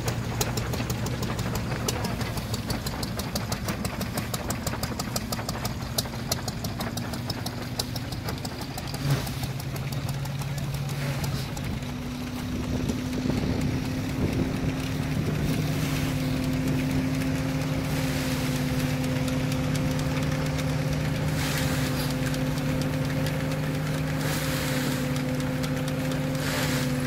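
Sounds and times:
threshing machine humming: 0:00.0 - 0:27.0
rushing bursts of sheaves: 0:12.2 - 0:27.0.

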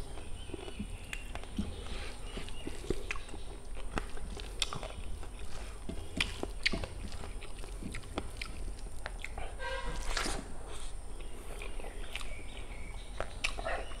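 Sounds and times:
chewing: 0:00.0 - 0:14.0.

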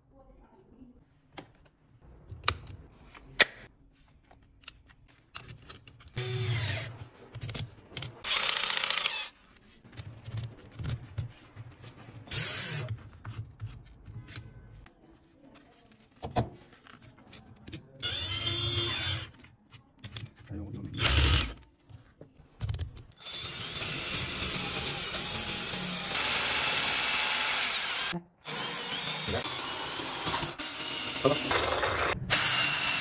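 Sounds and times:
cordless drill motor running: 0:06.2 - 0:06.9, 0:08.2 - 0:09.3, 0:12.3 - 0:12.8, 0:18.0 - 0:19.3, 0:21.0 - 0:21.6, 0:23.2 - 0:33.0.

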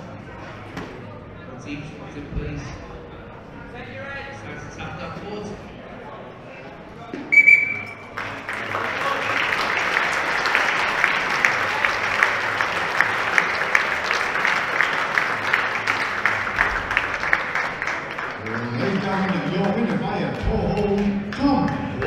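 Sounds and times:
audience applause: 0:08.0 - 0:22.0.

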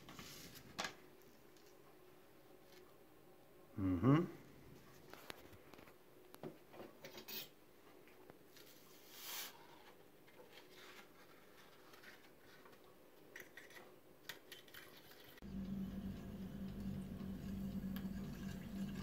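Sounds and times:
steady low hum: 0:15.4 - 0:19.0.

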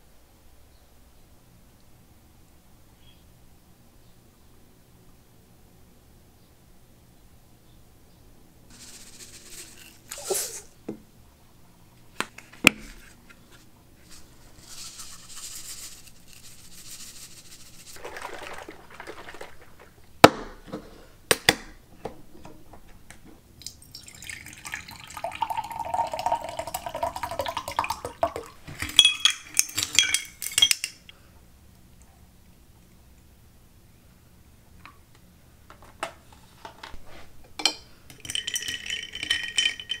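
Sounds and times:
clinking: 0:28.9 - 0:31.1, 0:37.6 - 0:40.0.

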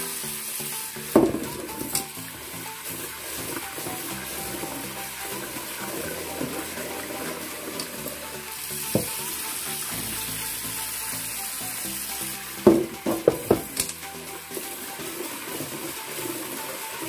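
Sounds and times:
running water hiss: 0:00.0 - 0:17.0
pot knocking: 0:01.1 - 0:02.1, 0:08.9 - 0:09.2, 0:12.6 - 0:13.9.

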